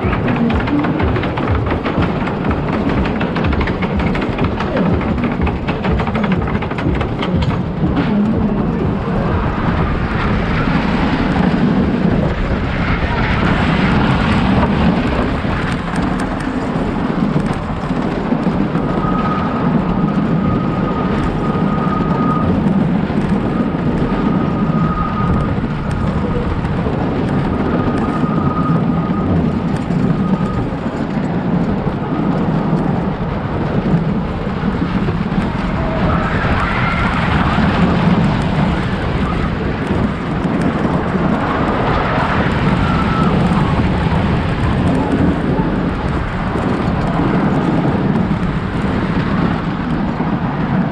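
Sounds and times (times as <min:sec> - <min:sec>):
roller coaster wheels rumbling: 0:00.0 - 0:50.9
high wheel squeal: 0:18.7 - 0:31.2, 0:35.3 - 0:45.9.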